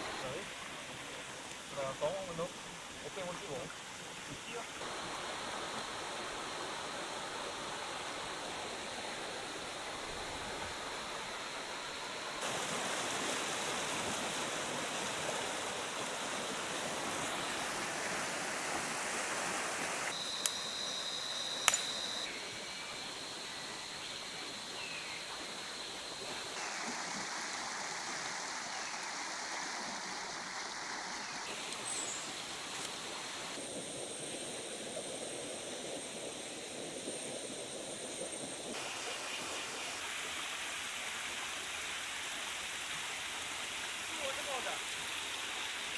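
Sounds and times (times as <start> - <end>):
water rushing over rocks: 0.0 - 20.2
sharp clicks: 21.6 - 22.0.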